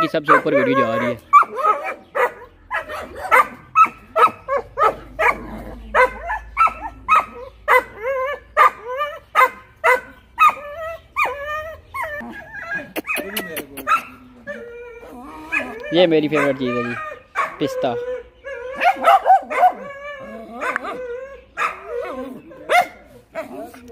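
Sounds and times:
dog barking: 0.0s - 8.0s, 8.6s - 10.6s, 13.0s - 14.2s, 15.5s - 17.7s, 18.7s - 20.0s, 20.6s - 21.0s, 21.6s - 22.1s, 22.7s - 23.7s.

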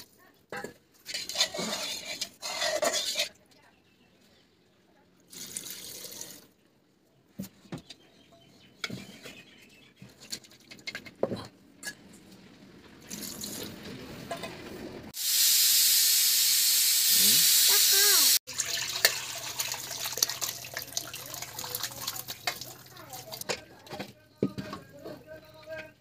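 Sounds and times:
pressure cooker steam hissing: 15.2s - 18.4s
liquid pouring into pot: 18.5s - 23.4s.

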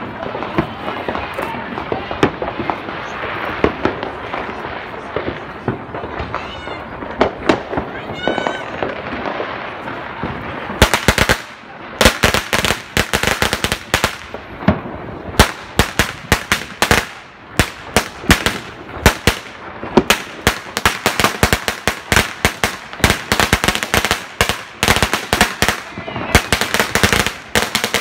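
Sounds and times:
firecrackers cracking: 0.0s - 28.0s.

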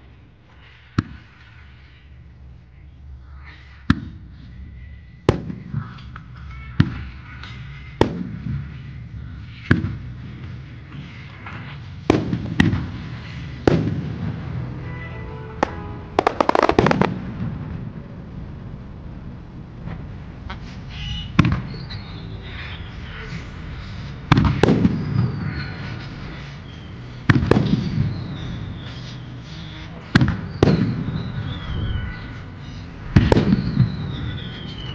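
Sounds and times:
crackling firework reports: 7.9s - 34.9s
rumble of firework booms: 12.0s - 14.8s, 15.6s - 20.6s, 21.4s - 21.7s, 24.3s - 25.4s, 27.3s - 28.8s, 30.1s - 32.0s, 33.0s - 34.9s
firework shells bursting: 12.1s - 17.8s, 24.3s - 25.3s, 27.3s - 28.8s, 29.6s - 31.4s, 33.0s - 34.9s.

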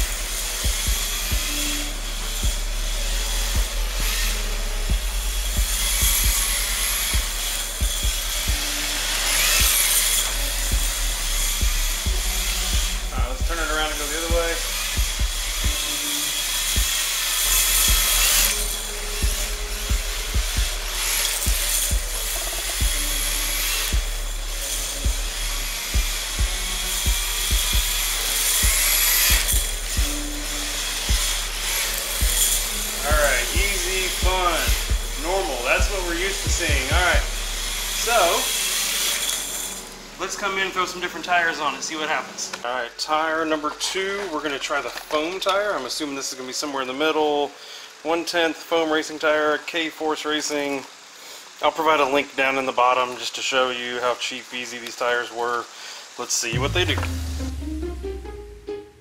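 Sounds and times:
electric motor whine: 0.0s - 43.0s
toy car tires scraping concrete: 8.4s - 11.6s, 12.8s - 19.4s, 37.9s - 40.5s, 41.5s - 46.0s.

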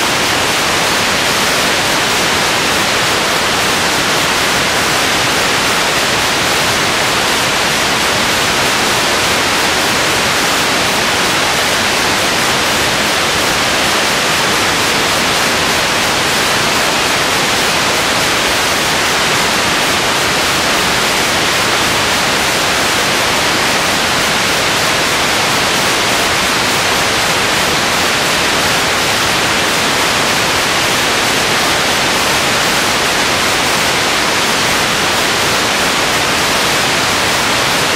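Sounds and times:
static hiss: 0.0s - 37.9s.

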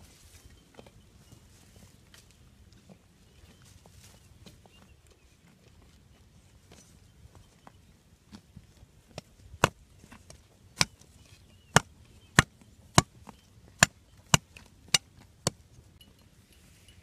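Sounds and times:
machete chopping wooden stick: 9.6s - 9.8s, 10.8s - 11.0s, 11.7s - 13.2s, 13.8s - 15.6s.

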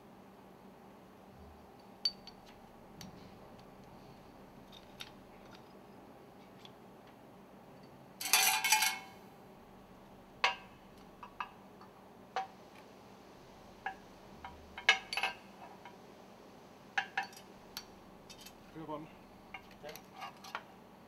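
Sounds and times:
metal ring segments clinking: 8.2s - 9.1s.

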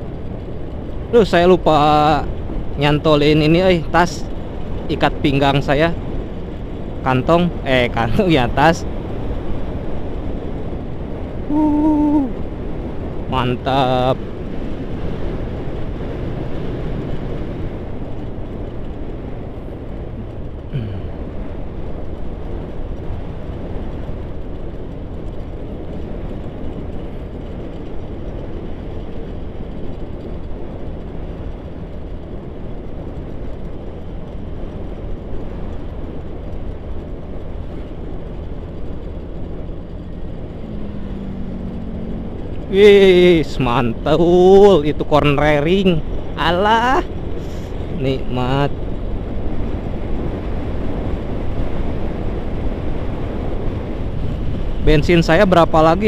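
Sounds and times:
motorcycle engine drone: 0.0s - 56.0s
wind over microphone: 6.0s - 56.0s
short falling whine: 11.4s - 12.4s, 38.8s - 49.2s.

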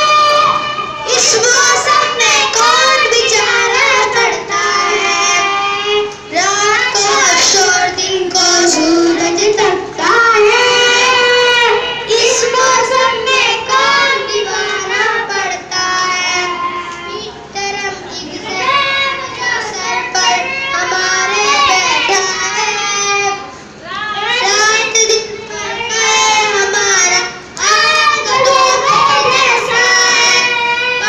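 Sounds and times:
boys singing together: 0.0s - 31.0s.

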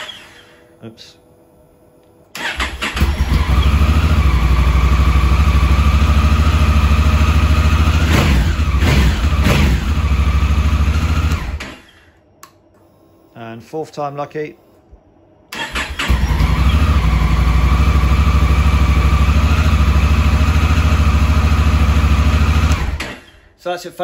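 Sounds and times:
electric starter cranking: 0.0s - 0.6s, 2.4s - 5.2s, 7.9s - 12.2s, 15.5s - 23.6s
motorcycle engine idling: 3.3s - 11.3s, 16.2s - 22.7s.

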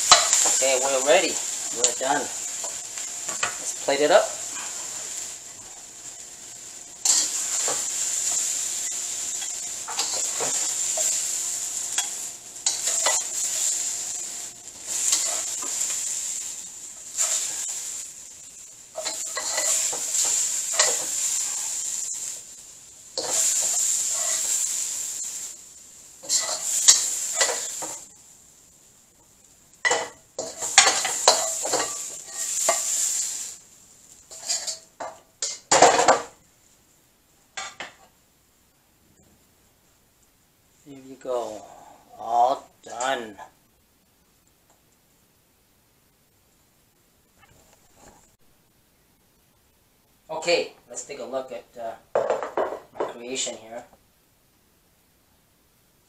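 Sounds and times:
spatula scraping a wok: 0.0s - 25.6s, 26.2s - 28.1s, 29.8s - 33.6s, 34.2s - 36.3s
food sizzling in a wok: 0.0s - 54.3s.

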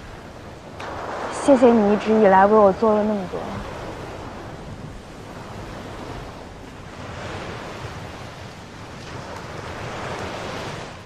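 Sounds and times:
ocean waves breaking on beach: 0.0s - 11.0s.

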